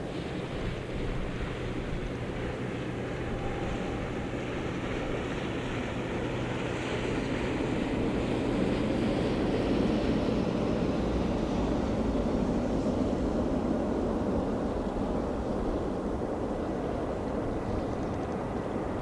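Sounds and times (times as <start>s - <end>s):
distant jet engines rumbling: 0.0s - 19.0s.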